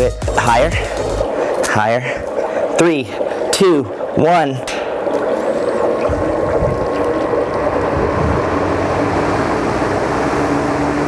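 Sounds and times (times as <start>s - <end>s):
drum fan whirring hum: 0.0s - 11.0s
low rumble: 6.0s - 9.9s.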